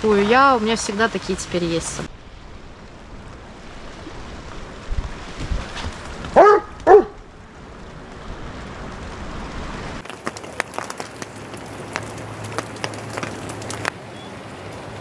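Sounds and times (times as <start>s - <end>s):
dog barking: 6.4s - 7.2s
raindrops ticking: 10.0s - 15.0s.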